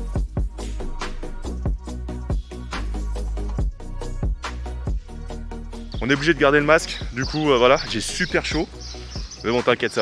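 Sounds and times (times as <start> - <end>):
deep sustained bass: 0.0 - 9.4
heavy kick drum: 0.1 - 0.7, 1.5 - 2.5.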